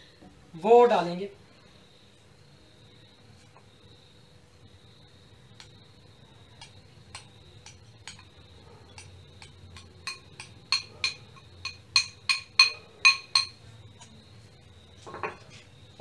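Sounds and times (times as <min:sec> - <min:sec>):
spoon tapping glass bowl: 0:06.6 - 0:13.6.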